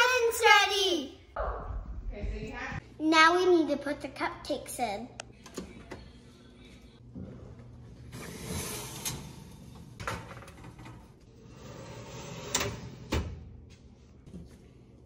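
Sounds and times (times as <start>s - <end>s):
oven rack sliding with scraping rattle: 8.0s - 13.4s.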